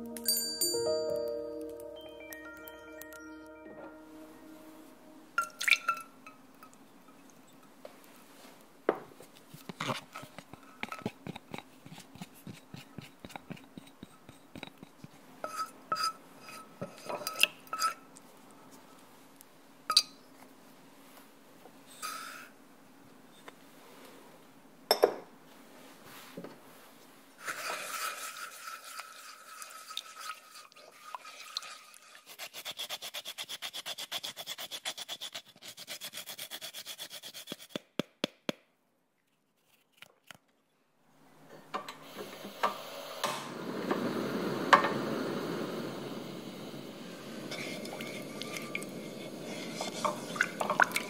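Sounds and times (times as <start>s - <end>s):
lime rasping on grater: 27.4s - 37.8s
gas burner rushing: 41.9s - 50.4s
hissing scrape: 42.1s - 50.8s.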